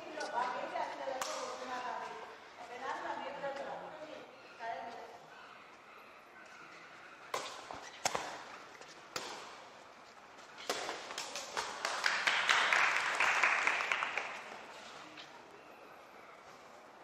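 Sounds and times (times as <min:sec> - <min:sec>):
crowd clapping: 0:11.2 - 0:14.6.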